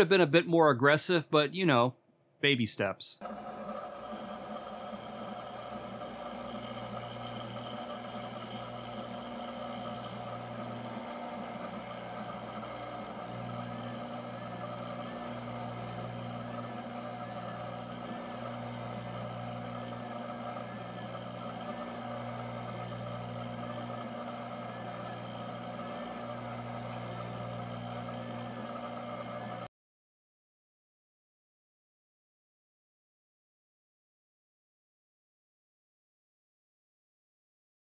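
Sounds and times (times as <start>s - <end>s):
low motor hum: 3.2s - 29.7s
milling machine spindle running: 3.2s - 29.7s.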